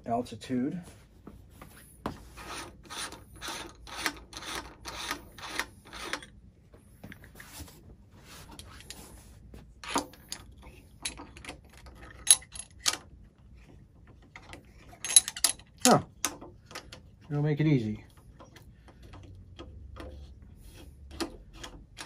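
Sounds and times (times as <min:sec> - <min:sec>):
metal clicks and knocks: 0:13.9 - 0:17.2, 0:18.1 - 0:22.0.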